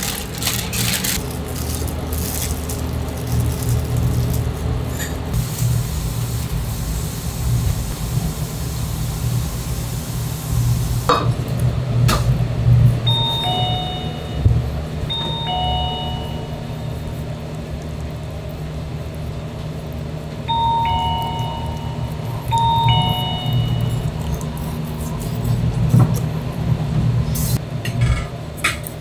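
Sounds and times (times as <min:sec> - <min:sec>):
steady low hum: 0:00.0 - 0:28.6
hiss: 0:05.4 - 0:11.1
electronic two-tone chime: 0:13.1 - 0:17.0, 0:20.5 - 0:24.1.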